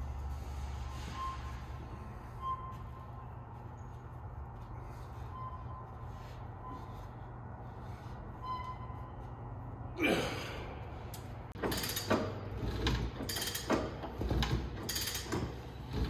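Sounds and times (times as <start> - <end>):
irregular clunks and rattles: 11.5 - 16.0.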